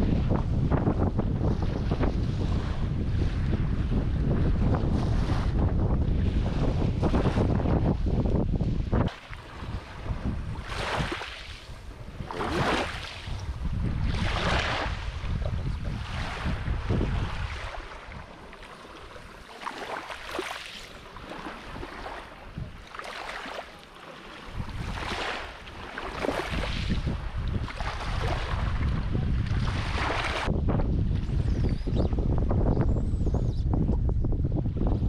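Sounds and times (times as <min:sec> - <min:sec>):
wind rumbling on microphone: 0:00.0 - 0:20.5, 0:21.2 - 0:23.0, 0:24.4 - 0:35.0
water sloshing around wading legs: 0:17.3 - 0:28.8.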